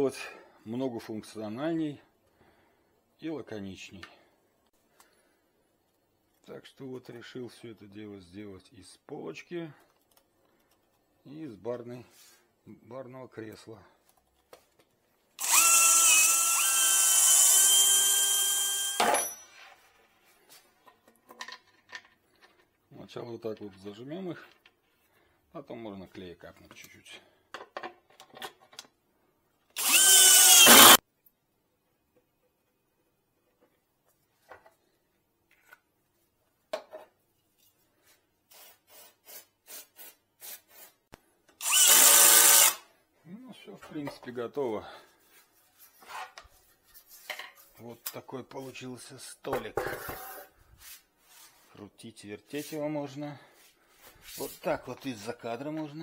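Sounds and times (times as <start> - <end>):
cordless drill whining into wood: 15.4 - 19.5, 29.8 - 31.0, 41.6 - 42.9.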